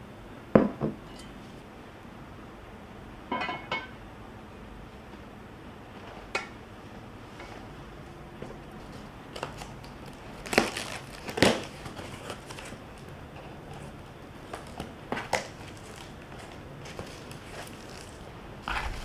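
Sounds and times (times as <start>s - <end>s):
cardboard crinkling and scraping: 8.8s - 13.0s, 13.7s - 19.0s
cardboard ripping: 9.4s - 12.8s, 14.6s - 19.0s.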